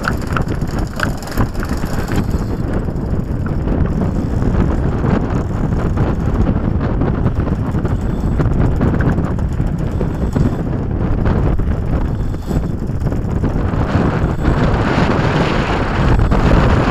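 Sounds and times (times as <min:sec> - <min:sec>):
wind buffeting the microphone: 0:00.0 - 0:16.9.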